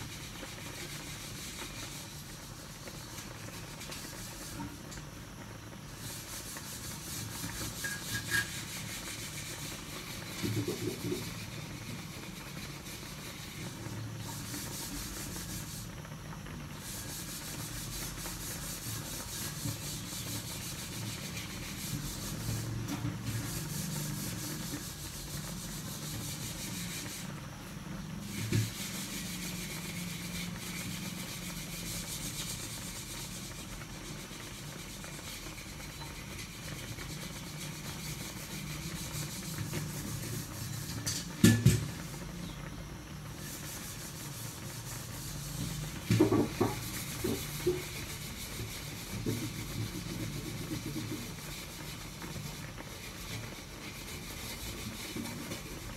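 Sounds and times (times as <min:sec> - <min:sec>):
knock: 0:46.1 - 0:47.4.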